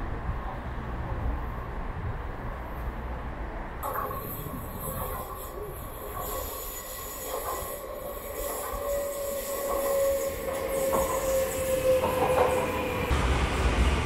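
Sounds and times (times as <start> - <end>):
electric train pulling in: 3.8 - 14.0
high brake squeal: 4.2 - 13.0.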